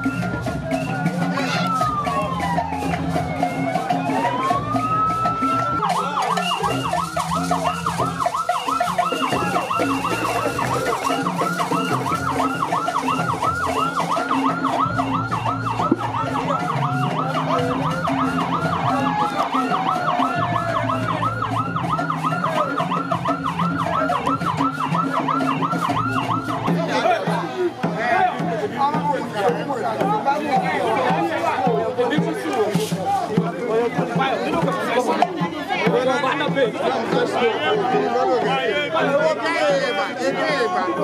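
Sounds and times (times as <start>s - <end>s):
ambulance siren yelping: 0.0s - 27.8s.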